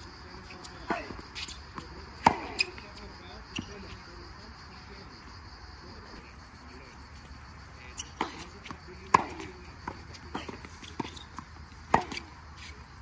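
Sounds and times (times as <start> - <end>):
tennis ball hits: 0.6 - 2.8, 8.1 - 12.4.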